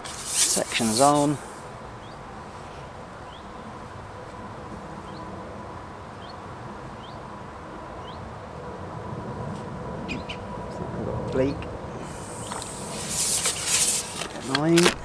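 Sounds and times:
steady low rumble: 0.7 - 15.0
bird chirping: 2.0 - 2.3, 3.2 - 3.8, 6.2 - 6.4, 7.0 - 7.2, 8.0 - 8.3, 10.1 - 10.5.

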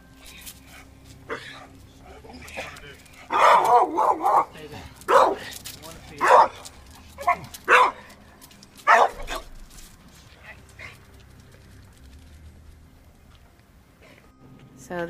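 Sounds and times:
dog barking aggressively: 2.5 - 8.2, 8.8 - 9.5.

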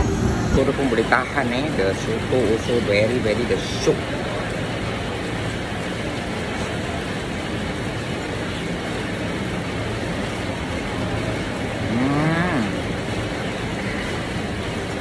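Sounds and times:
steady rain hiss: 0.0 - 14.8
person humming: 11.8 - 12.8.

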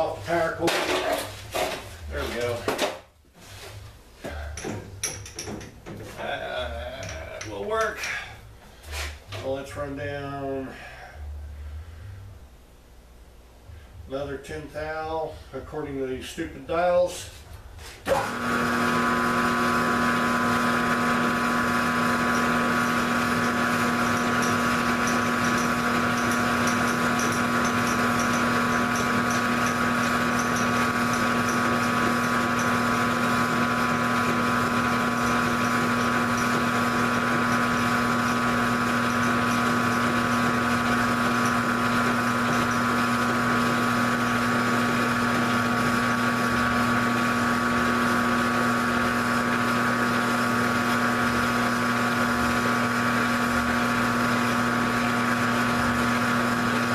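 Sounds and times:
milling machine whine: 18.1 - 56.9.

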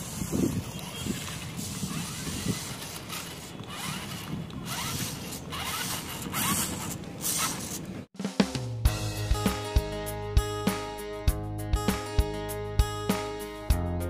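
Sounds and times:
toy car motor whirring: 0.0 - 7.9
tyres scraping on grit: 0.0 - 8.1.

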